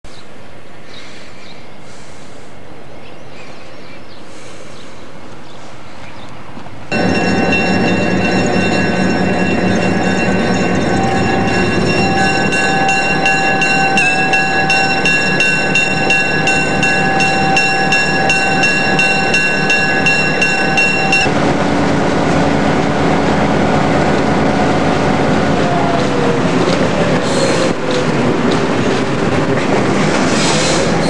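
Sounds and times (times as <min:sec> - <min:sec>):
diesel locomotive engine: 0:04.2 - 0:31.0
train wheels on rails: 0:06.6 - 0:31.0.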